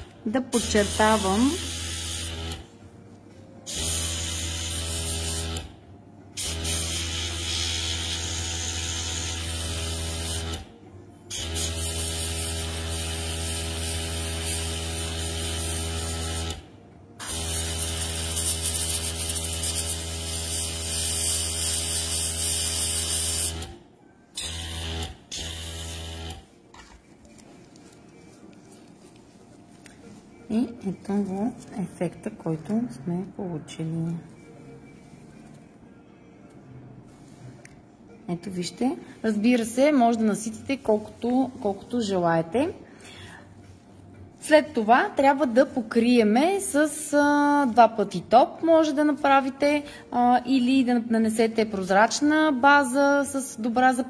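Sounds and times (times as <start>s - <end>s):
airbrush compressor humming: 0.6s - 2.7s, 11.3s - 23.8s.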